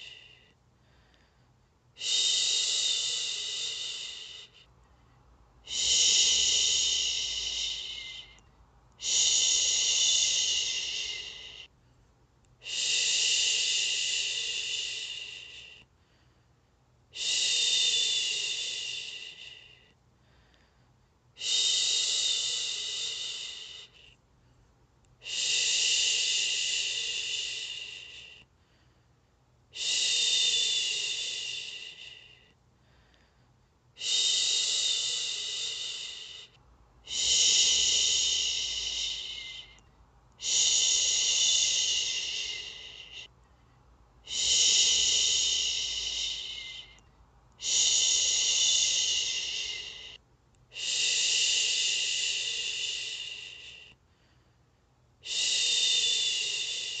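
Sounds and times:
woman shushing: 37.1 - 39.8, 40.4 - 43.3, 44.3 - 47.0, 47.6 - 50.2.

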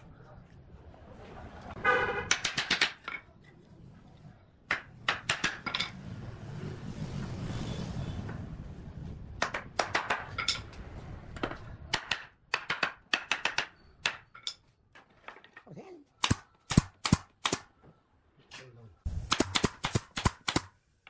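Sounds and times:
sharp wooden knocks: 2.2 - 3.2, 4.7 - 5.9, 9.4 - 10.6, 11.4 - 14.4.

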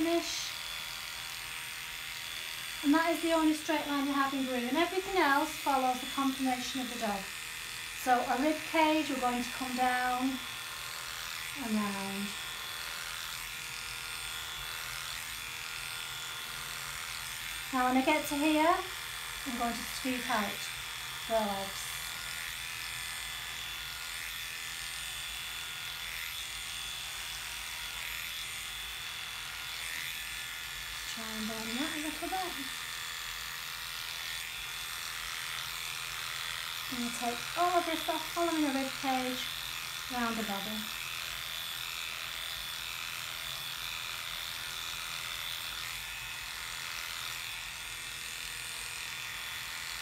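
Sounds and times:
electric clippers humming: 0.0 - 50.0.

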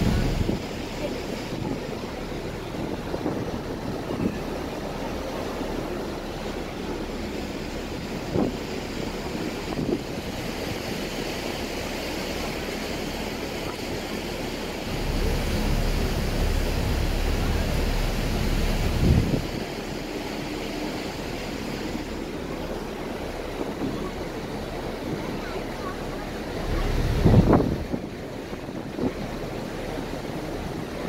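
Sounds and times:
wind and water rushing: 0.0 - 31.0
wind buffeting the microphone: 0.0 - 31.0
low rumble: 14.7 - 20.1.

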